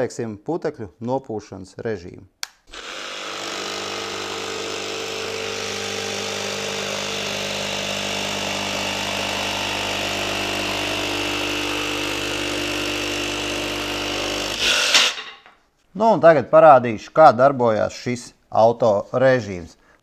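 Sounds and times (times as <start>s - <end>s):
jigsaw sawing through board: 2.7s - 15.3s.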